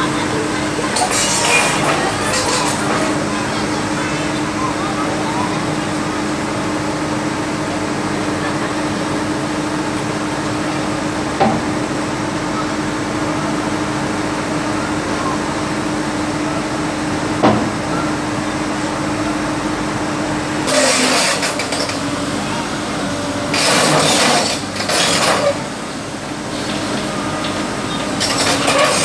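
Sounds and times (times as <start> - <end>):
heavy diesel engine idling: 0.0 - 29.0
metal ramps clanking: 0.9 - 3.7, 20.7 - 22.1, 23.5 - 25.7, 26.6 - 29.0.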